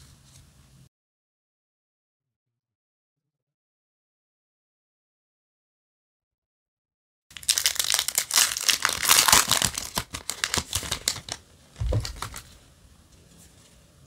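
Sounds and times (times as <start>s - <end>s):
foil wrapper tearing and crinkling: 7.3s - 12.5s.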